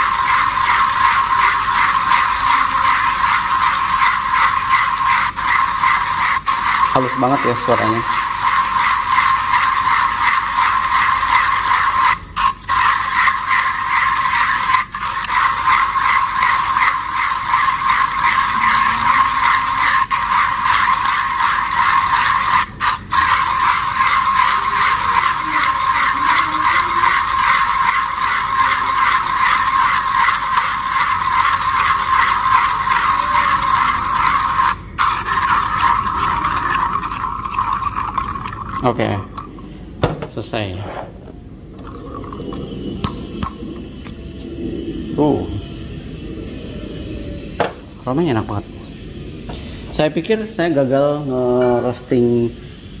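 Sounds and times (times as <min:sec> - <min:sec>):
manual coffee grinder grinding: 0:00.0 - 0:39.6.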